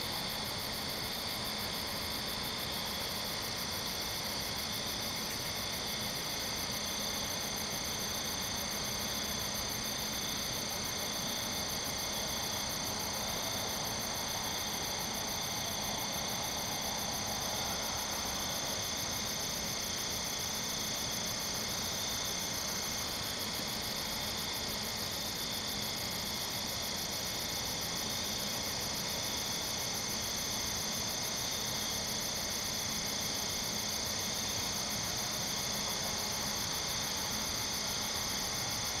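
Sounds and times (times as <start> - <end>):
crickets trilling: 0.0 - 39.0.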